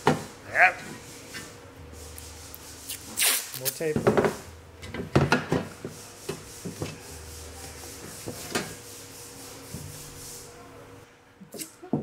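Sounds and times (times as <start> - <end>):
rubbing and scraping strokes: 0.8 - 3.6, 5.8 - 10.5.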